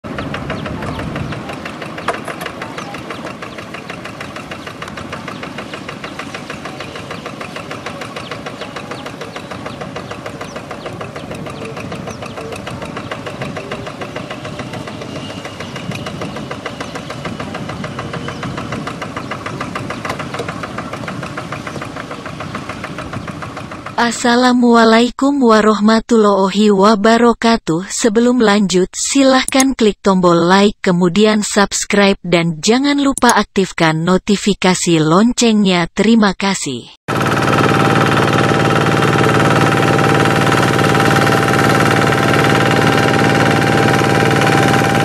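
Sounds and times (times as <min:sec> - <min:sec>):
diesel engine puttering: 0:00.0 - 0:26.0, 0:37.1 - 0:45.0.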